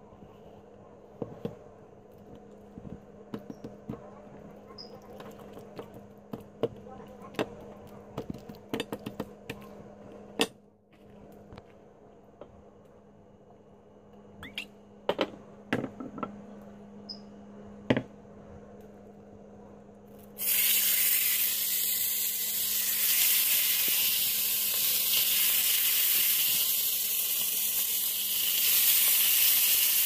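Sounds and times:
steady low hum: 0.0s - 20.4s.

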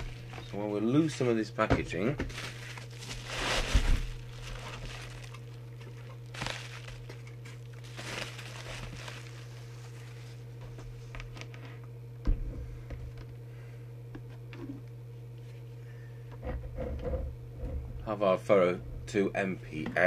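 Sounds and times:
steady low hum: 0.0s - 20.0s
bubble wrap crinkling: 2.2s - 10.5s.

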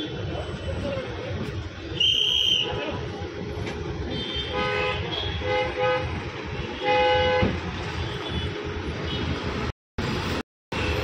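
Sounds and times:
street traffic: 0.0s - 11.0s
car horns honking: 4.1s - 9.4s.

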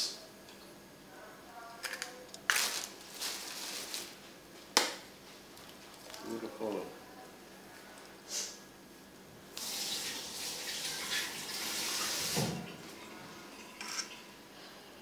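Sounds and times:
tap water running: 9.6s - 14.3s.

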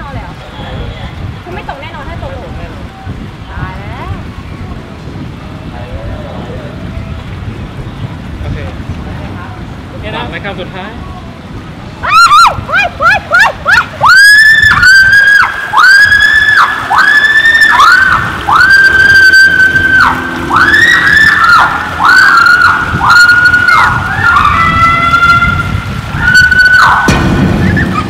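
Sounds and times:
woman screaming: 12.0s - 27.1s.

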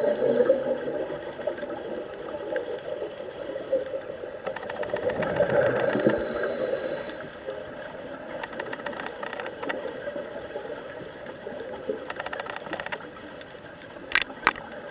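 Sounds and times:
underwater bubbles burbling: 0.0s - 8.8s
rapid clicks: 4.4s - 6.2s, 12.0s - 13.0s
regulator hiss: 5.8s - 7.4s.

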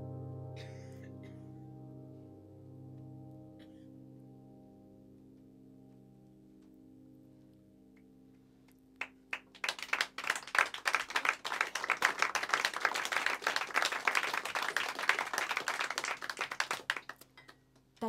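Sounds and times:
piano chord ringing: 0.0s - 8.4s
audience applauding: 9.0s - 17.6s.

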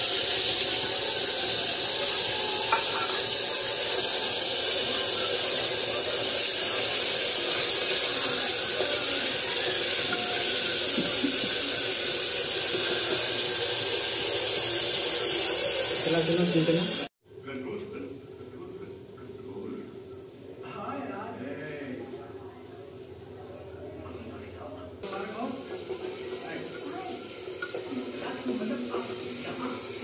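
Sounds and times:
masala paste sizzling in hot oil: 0.0s - 17.1s, 25.0s - 30.0s.

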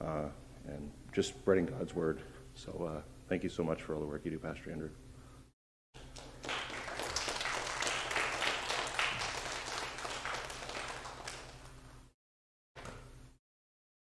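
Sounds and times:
congregation applauding: 6.0s - 11.9s.

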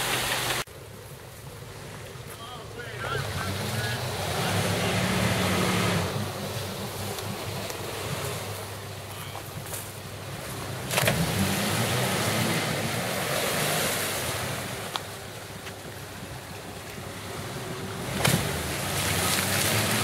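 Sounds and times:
engines revving: 1.6s - 20.0s
tyres spinning in mud: 17.6s - 20.0s.

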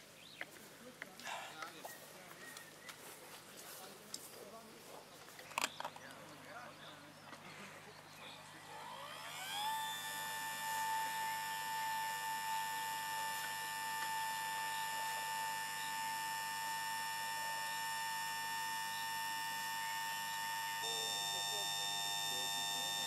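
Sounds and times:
electric fuel pump whining: 7.3s - 23.0s.

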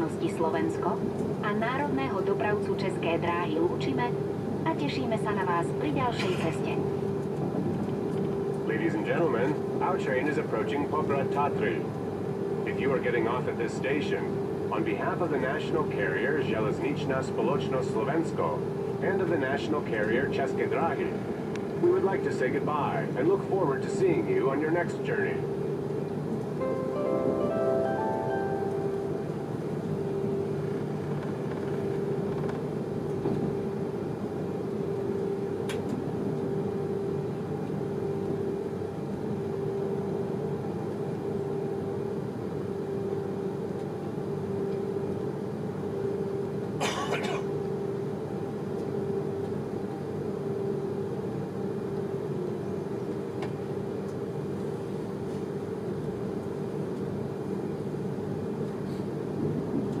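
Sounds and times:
constant hum: 0.0s - 60.0s.

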